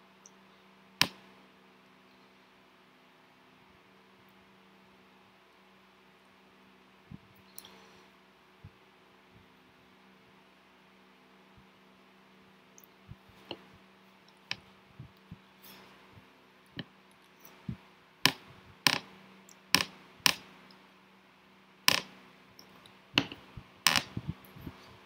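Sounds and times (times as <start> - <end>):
faint electrical hum: 0.0 - 25.0
sharp clicks and knocks: 16.7 - 20.5, 21.9 - 24.7.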